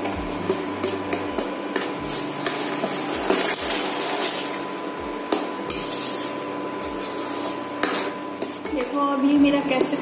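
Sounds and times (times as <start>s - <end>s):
ladle scraping a steel pan: 5.7s - 8.9s.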